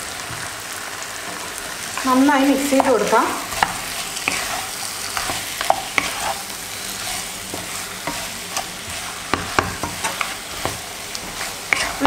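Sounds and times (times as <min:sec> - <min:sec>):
chicken sizzling in a pan: 0:00.0 - 0:12.0
wooden spatula scraping a pan: 0:01.3 - 0:12.0.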